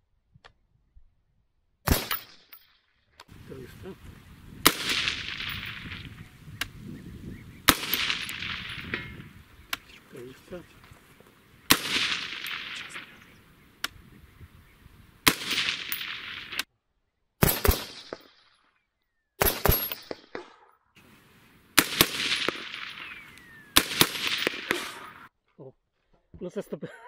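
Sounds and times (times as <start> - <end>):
suppressed rifle shots with echo: 1.9 - 2.4, 4.6 - 6.8, 7.6 - 14.5, 15.2 - 16.6, 17.4 - 18.2, 19.4 - 25.3.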